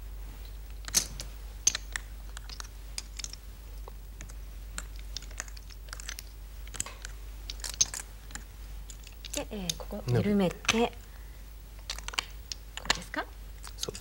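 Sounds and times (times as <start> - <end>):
go stones clicking on board: 0.8 - 9.9, 11.8 - 14.0.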